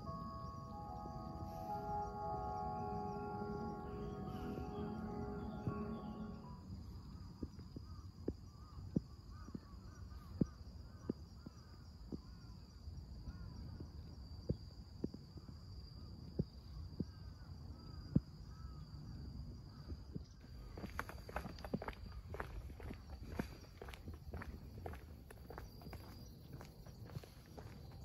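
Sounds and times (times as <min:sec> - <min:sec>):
high insect drone: 0:00.0 - 0:09.7
footsteps outdoors: 0:20.2 - 0:28.0.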